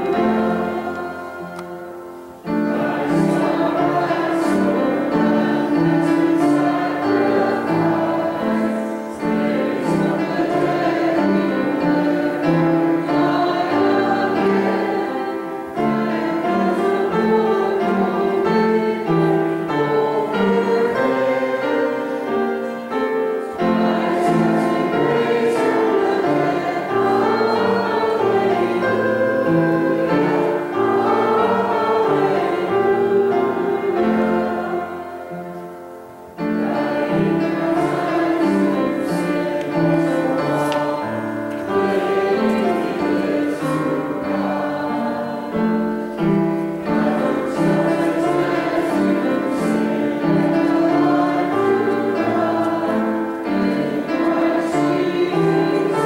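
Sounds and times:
congregation singing a hymn: 0.0s - 56.0s
keyboard accompaniment: 0.0s - 56.0s.

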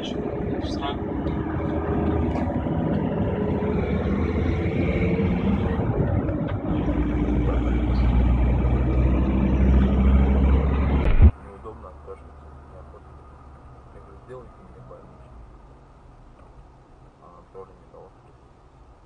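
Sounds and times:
lorry passing: 0.0s - 12.2s
deep low rumble: 0.0s - 18.2s
road and engine noise in vehicle: 0.0s - 19.0s.

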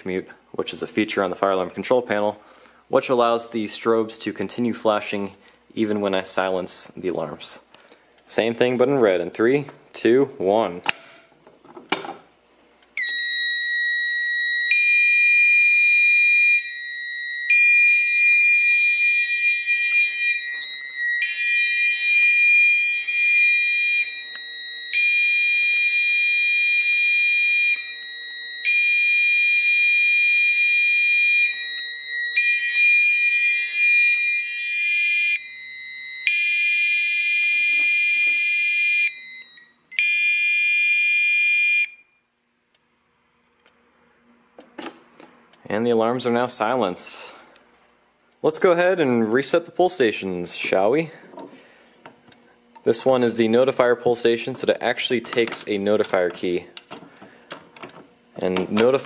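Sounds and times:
fire alarm horn blasts: 13.0s - 42.2s
fire alarm horn steady tone: 13.0s - 42.2s.

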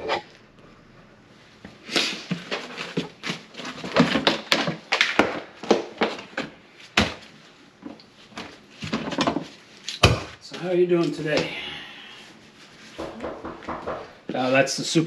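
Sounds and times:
objects knocking and rustling: 1.6s - 10.4s, 12.9s - 14.3s.

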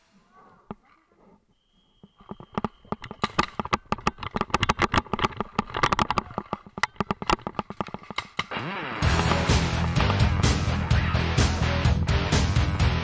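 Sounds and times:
paintball markers firing: 2.1s - 10.2s
music: 8.5s - 13.0s.

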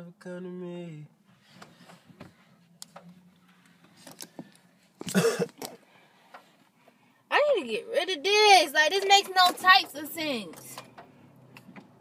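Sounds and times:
faint rustles: 1.2s - 7.2s
person coughing: 5.0s - 5.7s.

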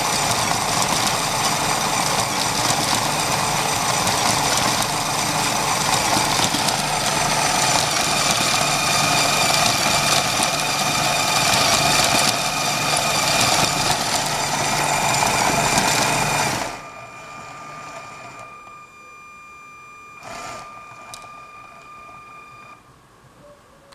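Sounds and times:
whirring clatter of plastic gears: 0.0s - 16.8s, 20.2s - 22.2s
faint high tone: 16.8s - 22.8s.

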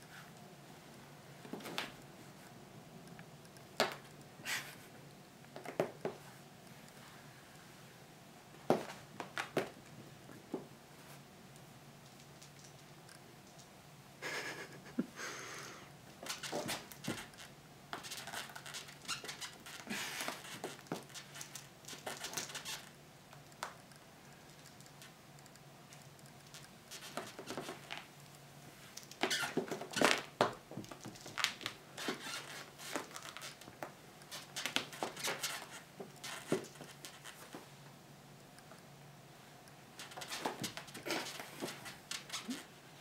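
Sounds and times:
kitten scratching and rustling: 16.2s - 22.9s, 26.0s - 28.1s, 30.9s - 37.6s, 40.0s - 42.6s.

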